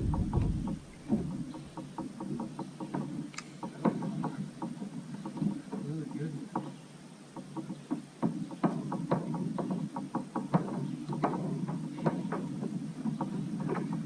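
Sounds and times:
low rumble: 0.0s - 1.2s
light clicks and knocks: 0.0s - 14.0s.

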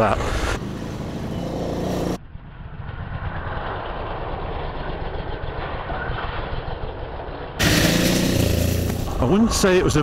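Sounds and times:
motorcycle engine running: 7.6s - 9.2s.

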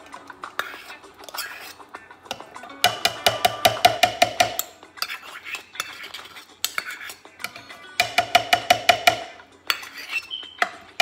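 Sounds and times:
spoon scraping and scooping: 0.5s - 3.2s, 4.6s - 8.0s, 9.6s - 11.0s
metal spoon clinking on bowl: 1.2s - 11.0s.

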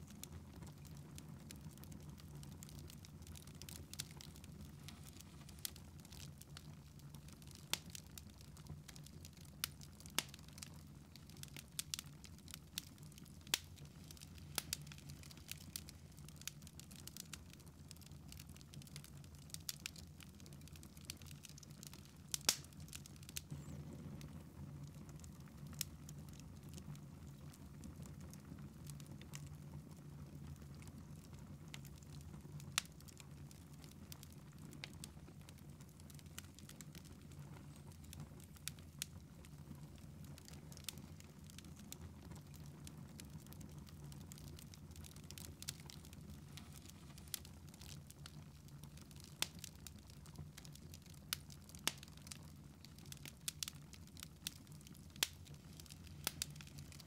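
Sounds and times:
wood fire crackling and popping: 0.0s - 57.0s
low steady hum: 22.0s - 25.4s.

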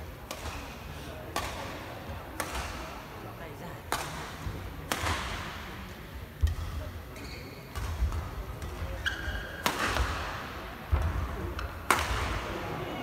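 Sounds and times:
racket striking shuttlecock: 4.9s - 5.4s, 9.6s - 10.2s, 10.9s - 12.4s
sneaker squeaks on court: 7.2s - 7.8s.

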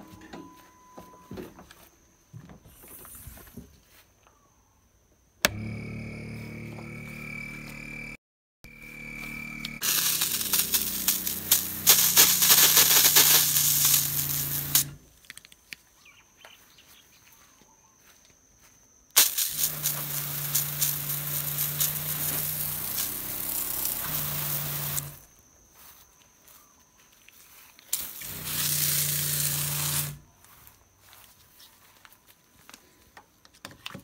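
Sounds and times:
water pump humming: 5.5s - 15.0s, 19.2s - 25.2s, 28.0s - 30.2s
hose spray onto grass: 9.8s - 15.0s, 19.2s - 25.2s, 27.9s - 30.2s.

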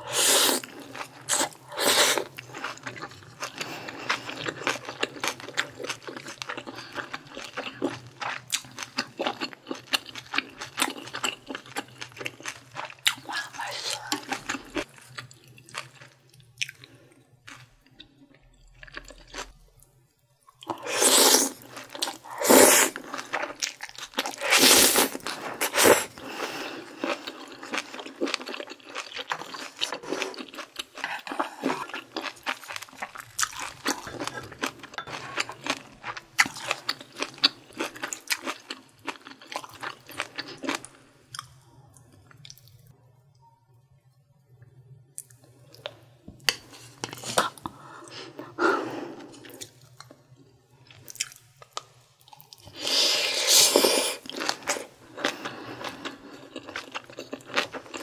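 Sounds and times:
close-miked chewing: 0.5s - 19.5s, 26.8s - 42.8s, 53.8s - 58.0s.

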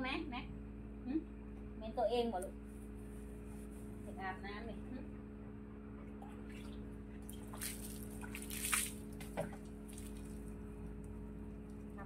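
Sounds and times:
steady low hum: 0.0s - 12.0s
water pouring and splashing on dog: 6.2s - 10.5s.

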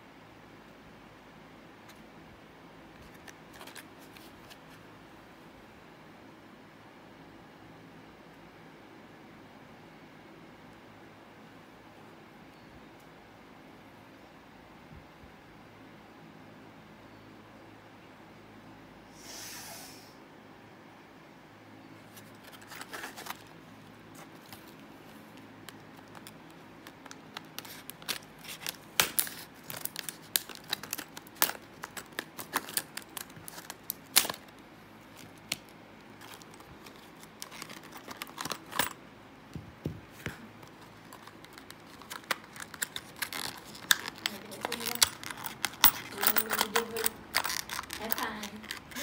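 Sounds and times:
plastic packaging crackling: 22.2s - 39.0s, 40.6s - 49.0s.

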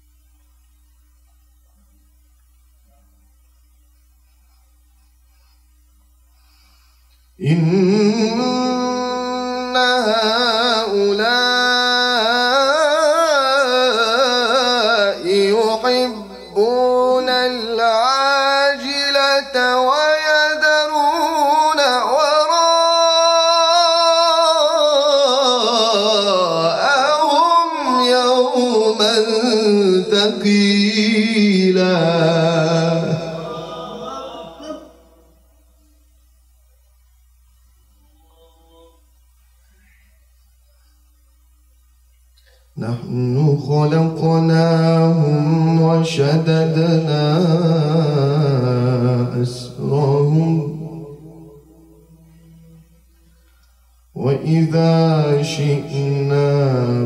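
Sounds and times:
man reciting melodically: 7.4s - 35.2s, 42.8s - 52.6s, 54.1s - 57.0s.

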